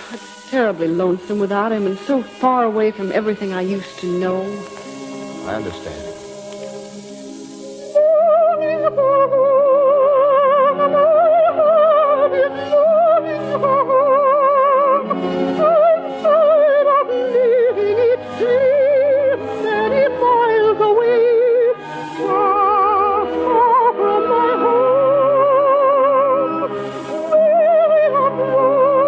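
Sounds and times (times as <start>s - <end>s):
orchestral accompaniment: 0.0s - 9.4s
soprano singing operatic melody: 0.0s - 29.0s.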